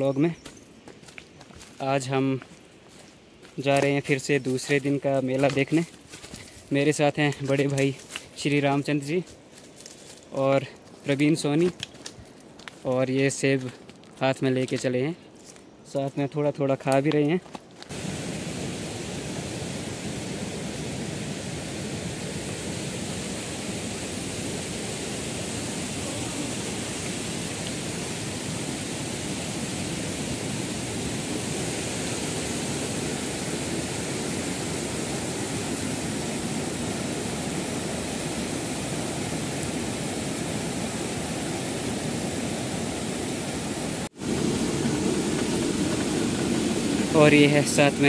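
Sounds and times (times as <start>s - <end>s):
stream rushing over boulders: 17.8s - 48.0s.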